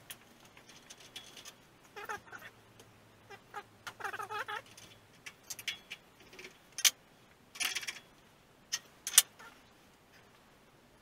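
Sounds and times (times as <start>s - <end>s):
metallic clicks of tools: 4.7s - 7.0s, 8.7s - 9.3s.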